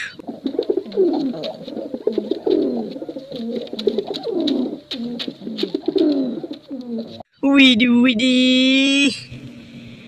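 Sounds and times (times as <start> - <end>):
pigeon cooing: 0.0 - 7.2.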